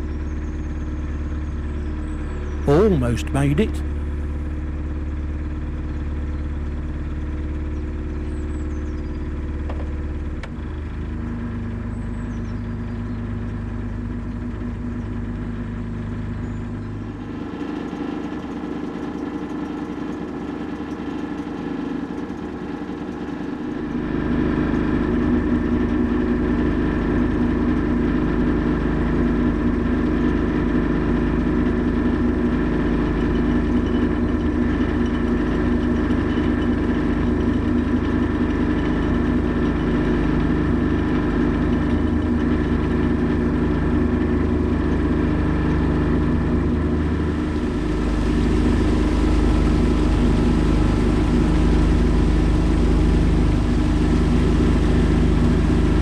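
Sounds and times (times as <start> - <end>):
boat engine idling: 14.7 - 56.0.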